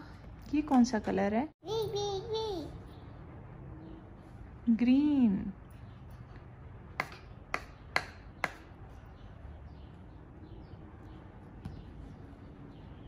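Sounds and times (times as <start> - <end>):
stamp tapping on paper: 7.0 - 8.6.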